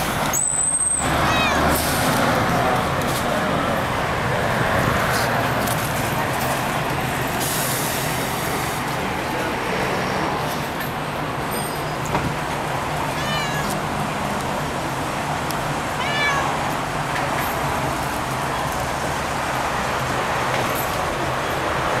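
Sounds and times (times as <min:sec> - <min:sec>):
background traffic: 0:00.0 - 0:22.0
cat meowing: 0:01.2 - 0:01.8, 0:13.1 - 0:13.9, 0:15.8 - 0:16.7.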